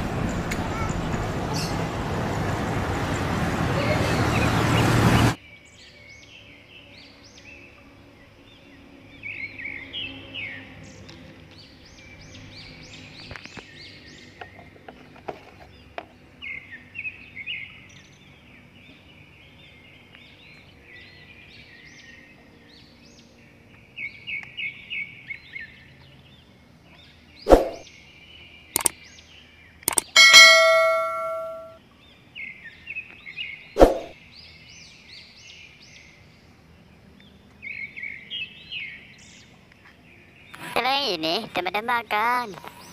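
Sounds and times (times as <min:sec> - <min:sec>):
birds chirping: 0:15.6 - 0:42.9
light clicks: 0:28.8 - 0:29.0, 0:29.8 - 0:30.1.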